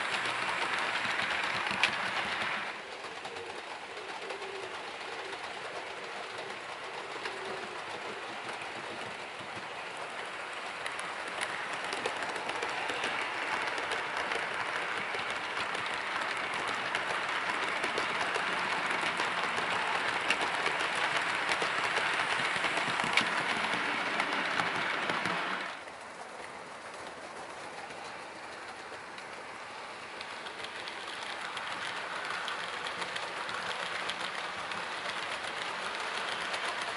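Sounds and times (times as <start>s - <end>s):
model train wheels rattling on rail: 0.0s - 36.9s
track clicks: 8.4s - 25.9s.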